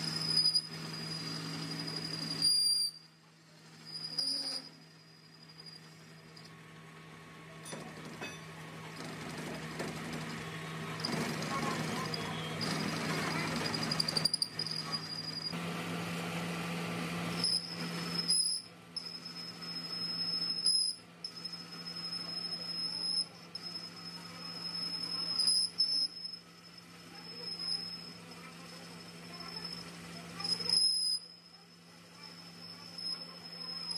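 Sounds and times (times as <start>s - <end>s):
cutting tool whining on metal: 0.0s - 6.6s, 7.7s - 33.9s
metal lathe humming: 0.0s - 7.2s, 8.8s - 33.9s.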